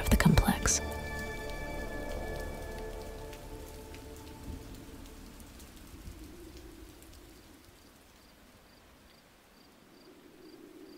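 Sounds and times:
steady rain: 0.0 - 10.9
faint cricket chirps: 5.9 - 10.9.

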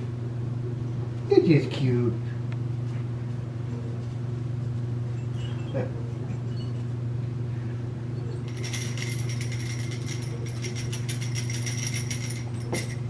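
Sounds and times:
steady low hum: 0.0 - 13.0
dog toy jingling rattle: 8.5 - 13.0.

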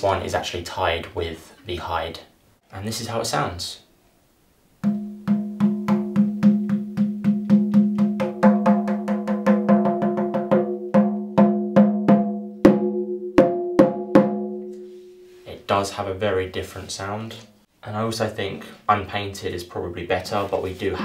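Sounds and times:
frame drum beating: 4.8 - 14.8.

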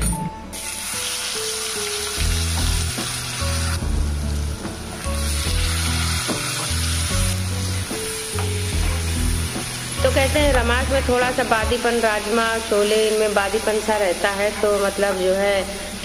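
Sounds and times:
paste sizzling in hot oil: 0.6 - 16.0
background music with bass: 2.2 - 12.0.

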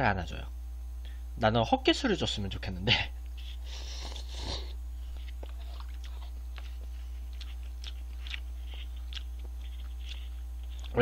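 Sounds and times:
steady low hum: 0.0 - 11.0
man slurping noodles: 3.6 - 4.8
wet chewing clicks: 5.0 - 11.0.

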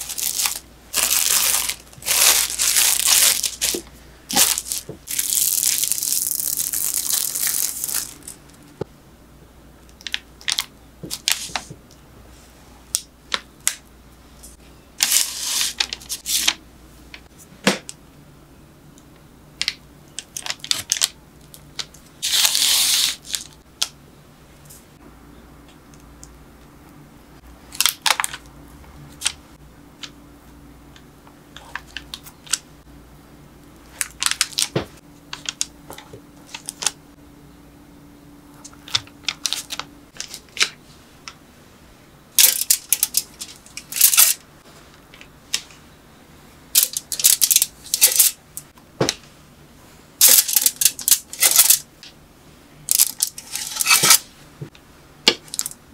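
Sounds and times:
kitchen wrap rustling: 0.0 - 8.4, 22.2 - 23.5, 52.9 - 54.3.

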